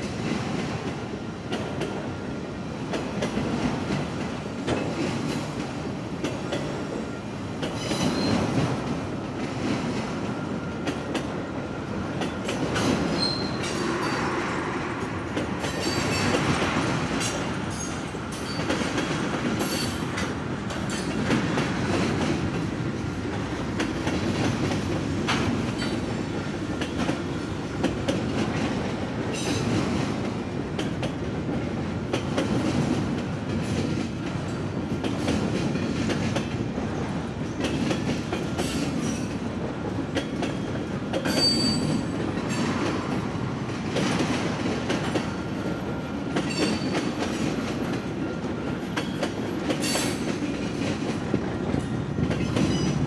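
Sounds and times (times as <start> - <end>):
freight train rumbling past: 0.0 - 53.0
wheels clicking over rail joints: 23.3 - 43.1.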